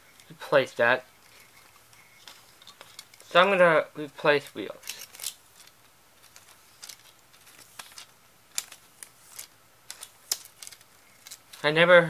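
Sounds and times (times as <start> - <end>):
plastic cassette parts clicking: 4.8 - 11.6.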